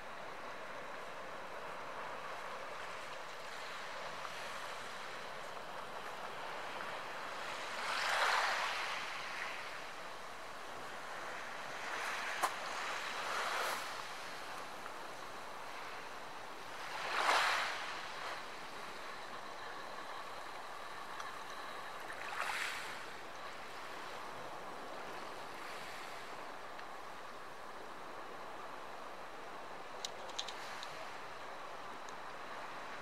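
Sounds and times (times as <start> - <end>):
small waves on pebble beach: 6.2 - 9.9, 10.8 - 20.0, 21.7 - 24.3.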